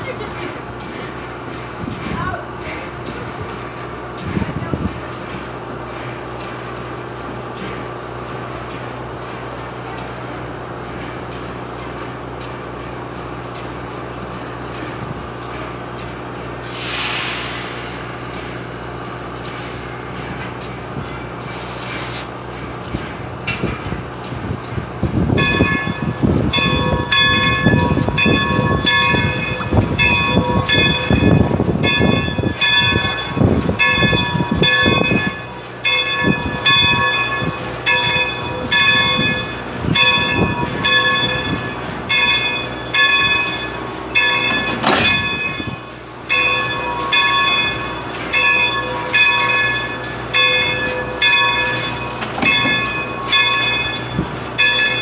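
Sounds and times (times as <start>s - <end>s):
locomotive bell ringing: 25.2s - 55.0s.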